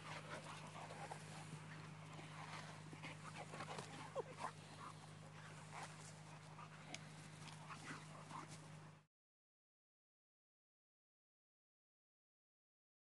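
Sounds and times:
dogs snuffling: 0:00.0 - 0:09.0
steady low hum: 0:00.0 - 0:09.1.

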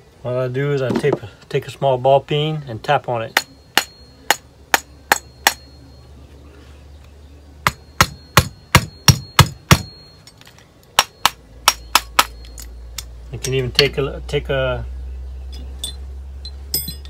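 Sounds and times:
hammer tapping on metal: 0:07.7 - 0:10.0.

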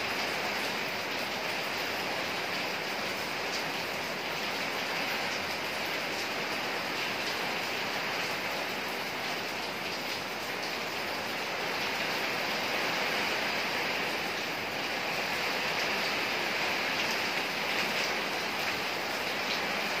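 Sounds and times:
rain falling steadily: 0:00.0 - 0:20.0.

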